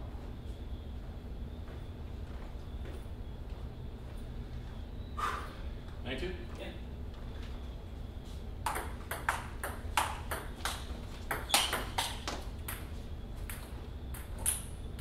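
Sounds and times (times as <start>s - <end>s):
table tennis ball clicking: 8.7s - 12.8s.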